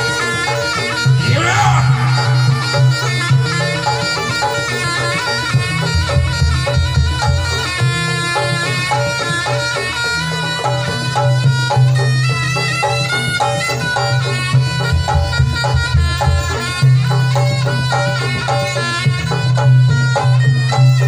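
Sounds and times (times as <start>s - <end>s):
shawm playing quick melody: 0.0s - 13.3s
drums: 0.0s - 21.0s.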